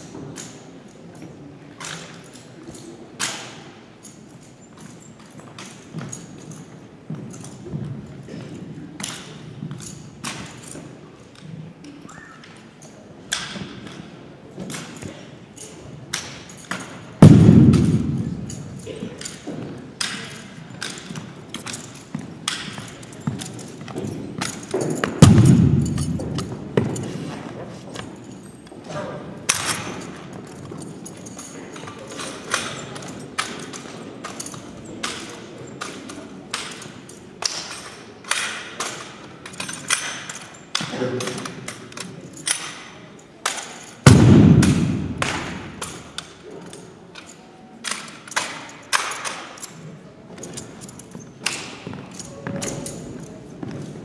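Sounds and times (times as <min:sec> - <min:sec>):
loud echoing thud: 0:17.2 - 0:18.8, 0:25.2 - 0:26.7, 0:44.1 - 0:45.8
rifle slapped and caught by hand: 0:25.2 - 0:26.5, 0:43.5 - 0:46.0.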